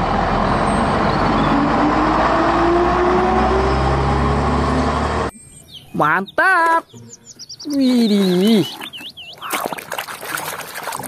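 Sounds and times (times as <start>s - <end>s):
bus diesel engine accelerating: 0.0s - 5.3s.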